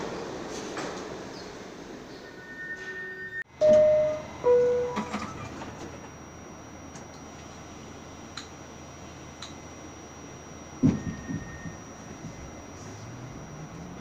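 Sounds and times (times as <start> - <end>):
subway car low hum: 0.0 - 14.0
subway door-closing chime: 2.1 - 6.3, 10.7 - 14.0
knocks: 10.8 - 12.4.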